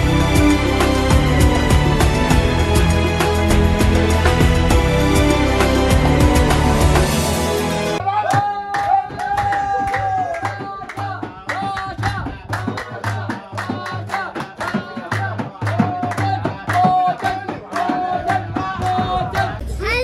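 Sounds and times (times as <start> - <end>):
hand clapping: 8.2 - 19.6.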